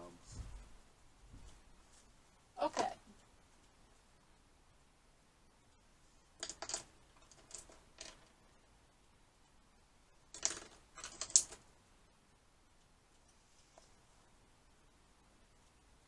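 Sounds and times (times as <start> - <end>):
wooden pencils clattering together: 6.4 - 8.3, 10.3 - 11.6.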